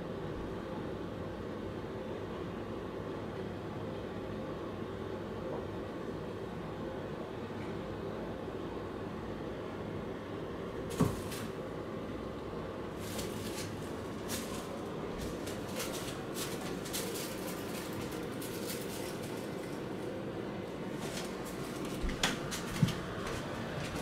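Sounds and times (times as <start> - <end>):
air purifier fan noise: 0.0 - 24.0
plastic bag crinkling: 13.0 - 20.0.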